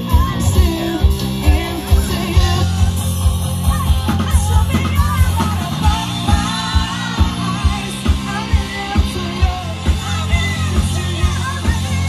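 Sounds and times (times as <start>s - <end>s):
bass guitar: 0.0s - 12.0s
electric guitars: 0.0s - 12.0s
person singing: 0.0s - 12.0s.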